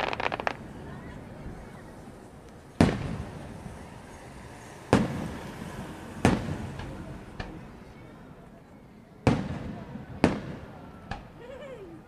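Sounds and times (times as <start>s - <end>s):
faint firework pops: 0.0s - 0.6s, 2.8s - 3.3s, 9.2s - 11.4s
firework shells booming: 0.0s - 0.6s.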